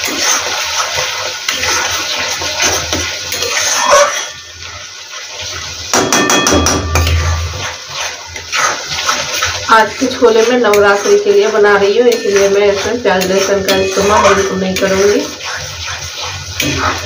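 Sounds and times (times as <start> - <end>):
masala frying: 0.0 - 17.0
metal spatula scraping a pan: 0.0 - 17.0
sharp spatula taps: 5.9 - 7.4.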